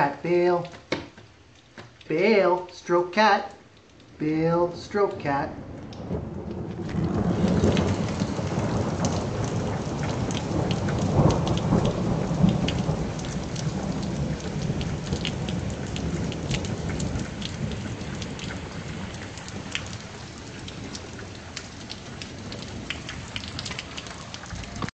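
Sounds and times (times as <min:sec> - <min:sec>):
heavy rain falling: 0:00.0 - 0:24.9
raindrops ticking: 0:00.0 - 0:24.9
low thunder roll: 0:05.4 - 0:24.9.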